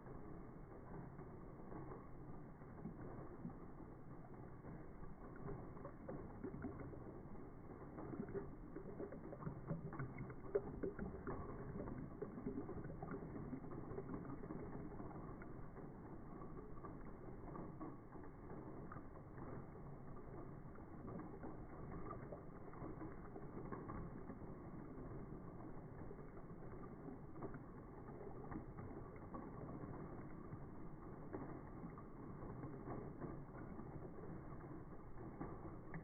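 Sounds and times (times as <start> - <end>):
faint pattering clicks: 0.0 - 36.0
liquid pouring into a glass: 2.9 - 36.0.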